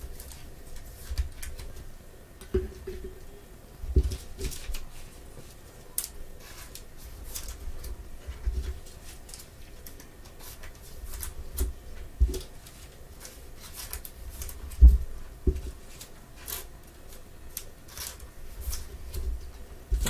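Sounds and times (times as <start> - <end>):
cards and plastic sleeve rustling: 4.0 - 15.0, 15.6 - 20.0.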